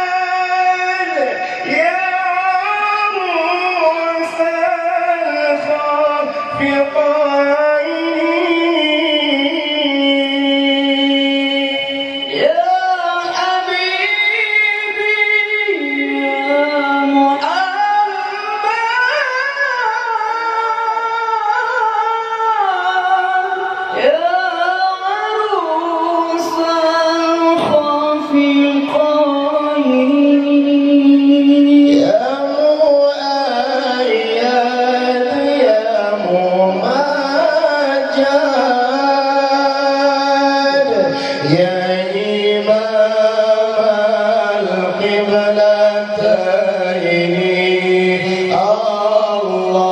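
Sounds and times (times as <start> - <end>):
two men singing a duet: 0.0 - 49.9.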